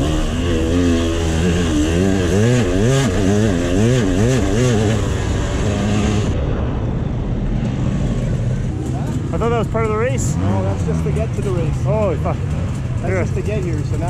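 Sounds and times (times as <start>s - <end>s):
dirt bike engine revving: 0.0s - 6.4s, 9.1s - 14.0s.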